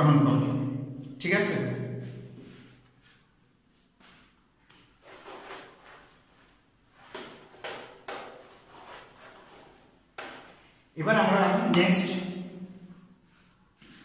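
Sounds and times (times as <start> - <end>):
duster rubbing whiteboard: 7.0 - 10.0.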